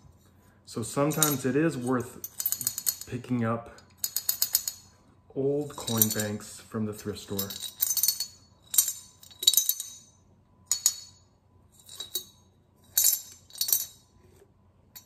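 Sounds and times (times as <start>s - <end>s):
coins clinking in ceramic bank: 5.7s - 6.4s, 7.2s - 10.1s, 11.8s - 14.1s.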